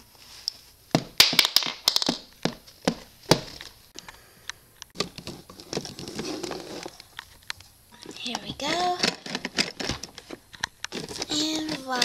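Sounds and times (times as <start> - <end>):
plastic toy pieces clicking and knocking: 8.0 - 12.0.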